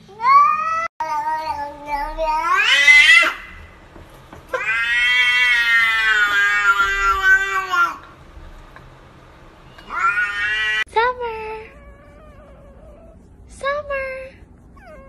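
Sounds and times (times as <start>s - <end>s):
cat meowing: 0.2s - 3.8s, 4.5s - 8.1s, 9.7s - 10.9s.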